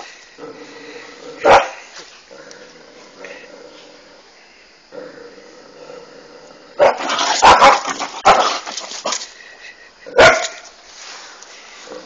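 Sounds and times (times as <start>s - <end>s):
dog barking: 1.4s - 1.8s, 6.8s - 8.6s, 10.2s - 10.6s.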